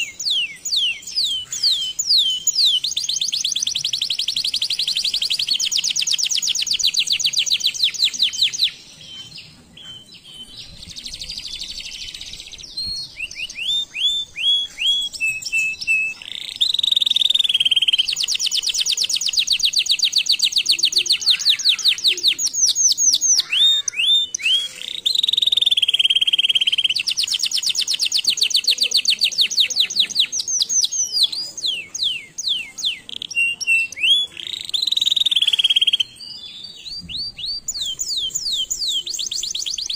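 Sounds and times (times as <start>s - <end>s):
canary singing trills: 0.0s - 39.9s.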